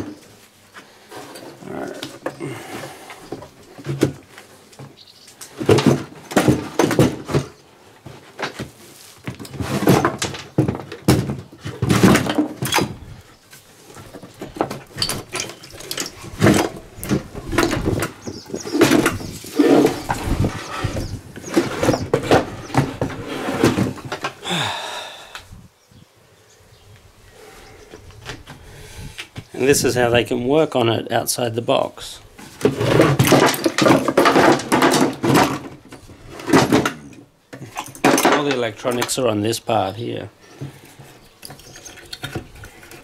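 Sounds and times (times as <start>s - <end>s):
chassis scraping on wooden case: 5.5s - 13.2s, 13.9s - 24.4s, 32.4s - 38.5s, 40.5s - 43.0s
knocks and thuds: 5.6s - 7.6s, 9.3s - 13.0s.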